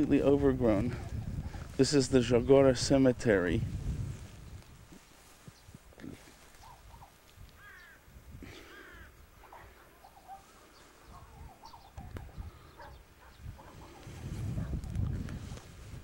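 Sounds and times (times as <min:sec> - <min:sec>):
small birds chirping: 0:04.2 - 0:15.1
crows cawing: 0:06.6 - 0:10.4.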